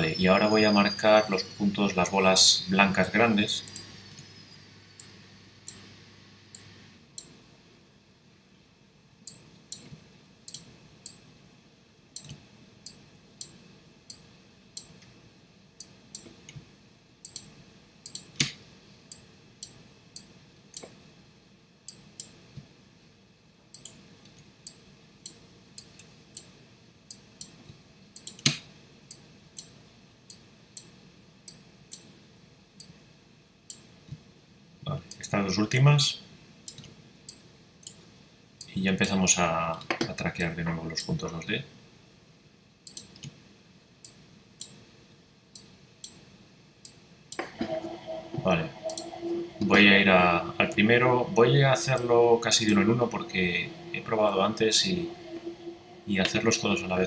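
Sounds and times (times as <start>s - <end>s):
computer mouse clicking: 5.0s - 5.9s, 10.5s - 11.2s, 12.2s - 14.2s, 15.8s - 16.6s, 17.2s - 21.0s, 23.7s - 26.5s, 28.2s - 30.9s, 36.7s - 38.0s, 42.9s - 43.4s.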